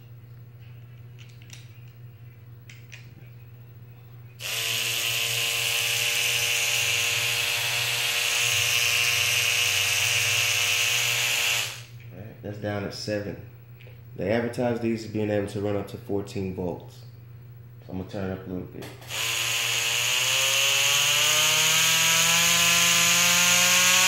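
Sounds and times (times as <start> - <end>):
tattoo machine buzzing: 4.4 - 12.0, 18.9 - 24.0.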